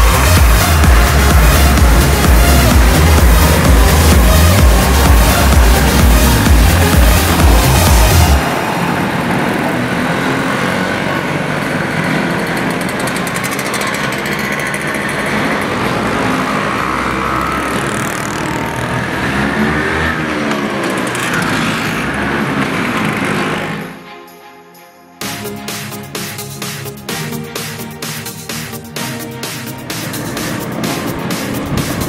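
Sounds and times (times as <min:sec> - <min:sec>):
scooters riding past: 0:00.0 - 0:24.1.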